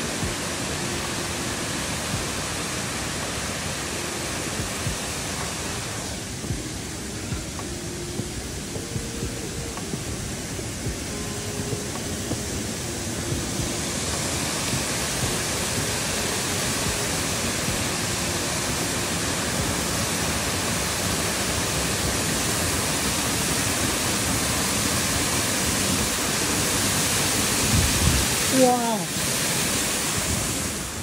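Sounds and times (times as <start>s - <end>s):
waterfall roaring: 0.0s - 31.0s.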